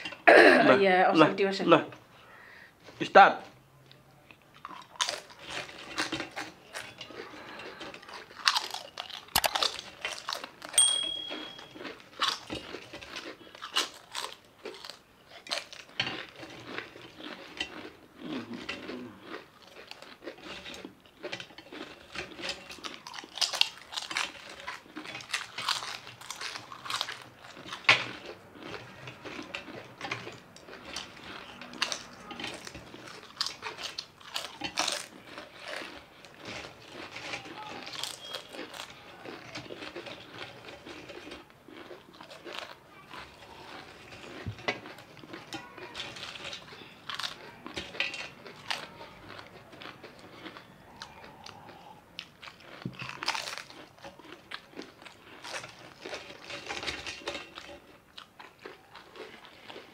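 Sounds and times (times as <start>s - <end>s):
people crunching chips: 3.9s - 59.9s.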